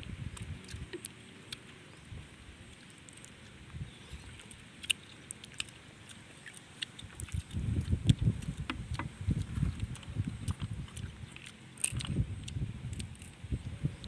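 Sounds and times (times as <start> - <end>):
low uneven rumble: 0.0 - 14.0
snail shells clicking together: 2.7 - 3.5, 4.3 - 5.8, 6.8 - 13.4.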